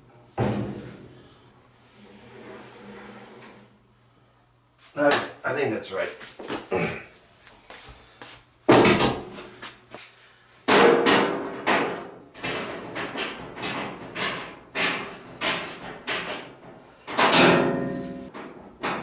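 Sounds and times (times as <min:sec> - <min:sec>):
knocks and clanks on dryer: 0:00.4 - 0:00.9, 0:08.7 - 0:09.3, 0:10.7 - 0:19.0
loud bangs on sheet metal: 0:08.7 - 0:09.3, 0:10.7 - 0:16.3, 0:17.1 - 0:18.0.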